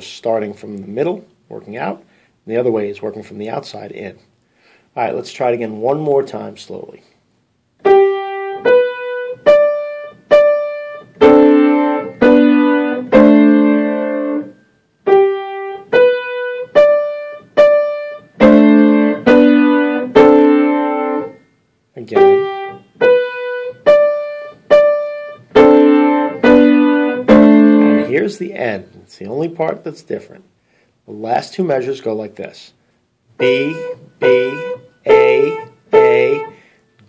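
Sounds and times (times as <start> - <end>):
piano played slowly: 7.8 - 21.4, 22.1 - 28.3, 33.4 - 36.6.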